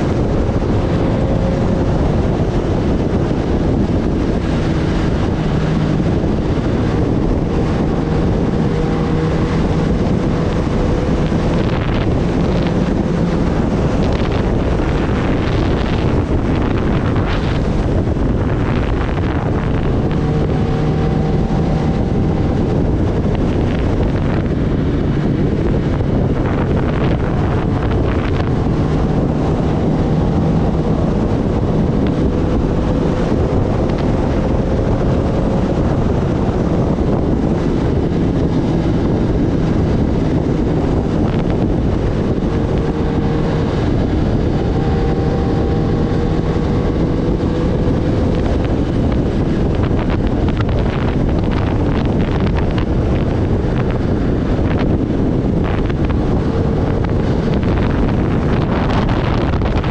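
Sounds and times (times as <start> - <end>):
motorcycle engine running: 0.0 - 59.9
wind rushing over microphone: 0.0 - 59.9.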